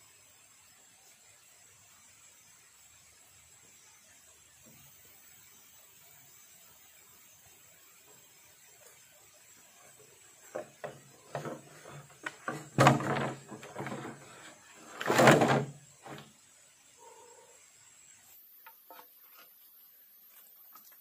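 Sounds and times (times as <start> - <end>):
hollow bamboo knocks: 10.5 - 14.2.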